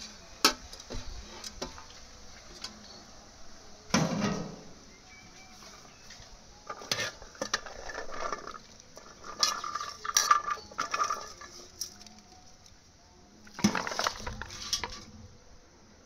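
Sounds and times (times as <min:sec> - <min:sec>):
metal utensils clinking in pot: 0:06.7 - 0:12.2.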